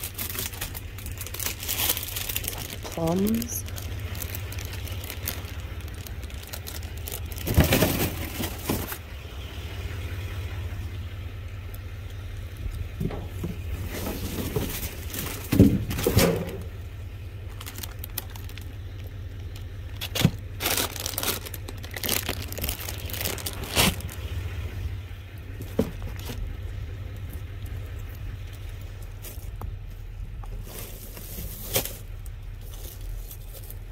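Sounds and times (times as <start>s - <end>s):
plastic bags crinkling: 0.0s - 9.0s, 13.7s - 16.6s, 17.4s - 24.4s, 25.6s - 26.6s, 30.6s - 33.9s
low hum: 0.0s - 33.9s
cardboard boxes scraping: 7.4s - 9.0s, 13.4s - 16.6s, 30.5s - 33.7s.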